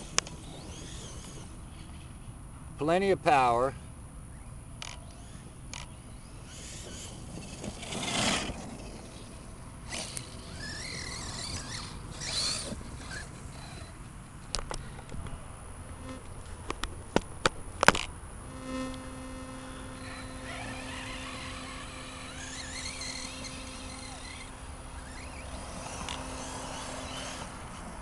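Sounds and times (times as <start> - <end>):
low buzzing hum: 0.0 - 28.0
electric motor whining: 9.9 - 14.0, 18.5 - 28.0.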